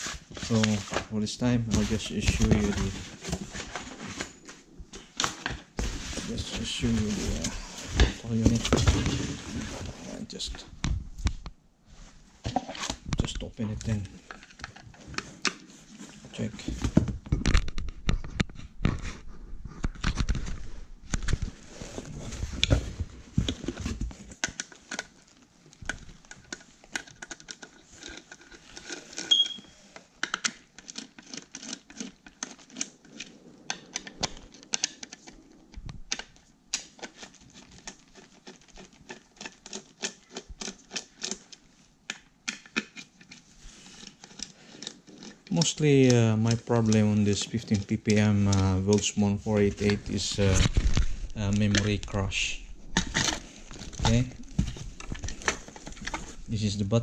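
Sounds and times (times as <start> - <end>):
handling knocks and bumps: 0.4 - 4.3, 53.0 - 56.5.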